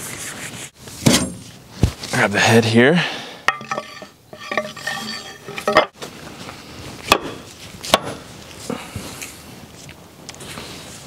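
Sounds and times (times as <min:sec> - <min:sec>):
metal tool head clinking: 0:03.5 - 0:05.9.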